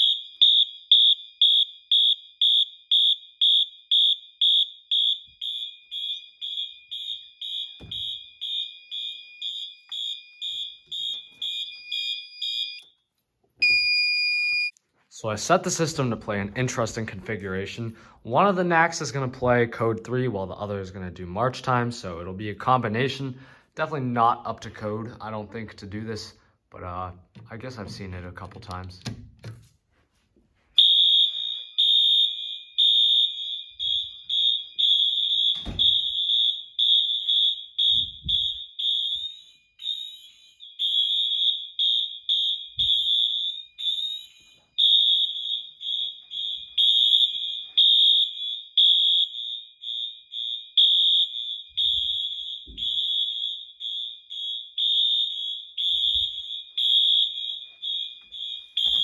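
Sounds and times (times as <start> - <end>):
fire alarm horns pulsing: 0.0 - 13.0, 30.8 - 59.0.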